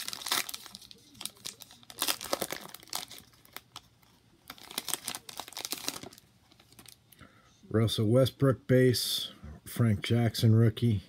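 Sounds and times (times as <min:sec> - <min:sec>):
foil wrapper crinkling: 0:00.0 - 0:07.0.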